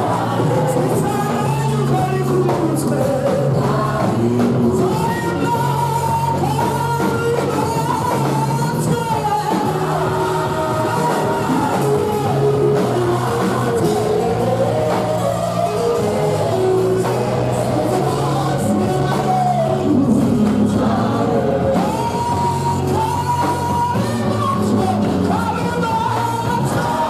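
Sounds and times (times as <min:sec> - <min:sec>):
gospel worship song singing: 0:00.0 - 0:27.0.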